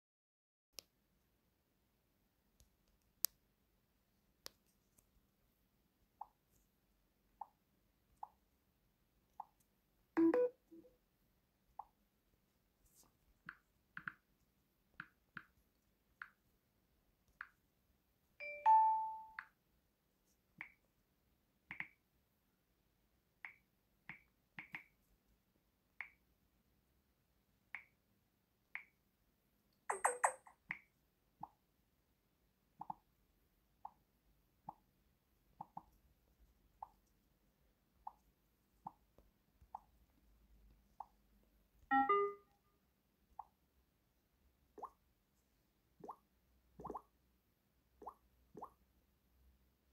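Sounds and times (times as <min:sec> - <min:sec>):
longer chimes: 0:41.9 - 0:42.5.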